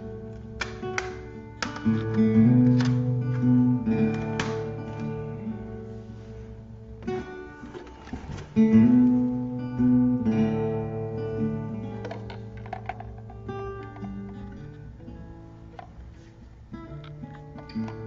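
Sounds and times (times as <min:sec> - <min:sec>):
acoustic guitar strummed chords: 0:00.0 - 0:18.0.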